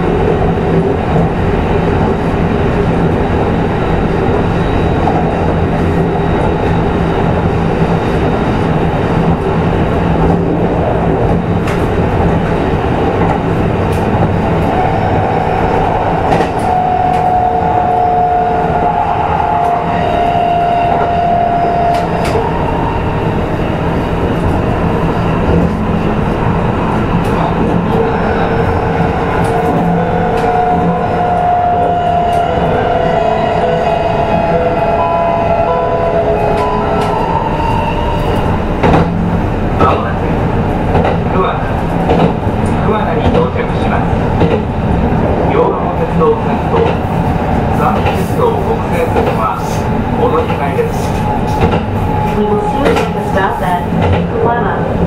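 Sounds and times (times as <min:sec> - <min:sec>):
train wheels rumbling: 0:00.0 - 0:55.0
rail joint clicks: 0:07.8 - 0:32.8, 0:36.2 - 0:55.0.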